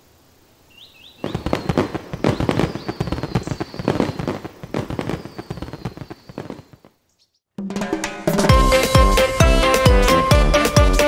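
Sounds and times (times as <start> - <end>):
fireworks bangs and crackling: 1.2 - 7.0.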